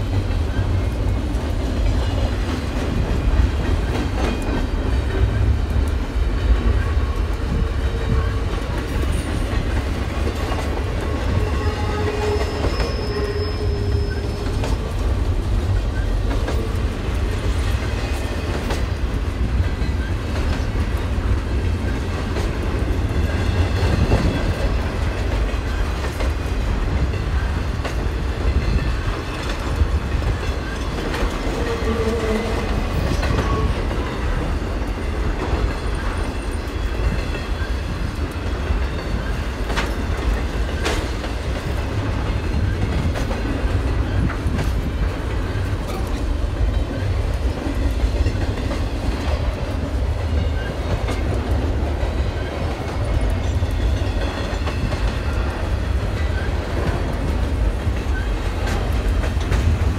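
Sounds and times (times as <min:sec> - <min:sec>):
low train rumble: 0:00.0 - 0:59.9
train wheels clacking on rails: 0:00.0 - 0:59.9.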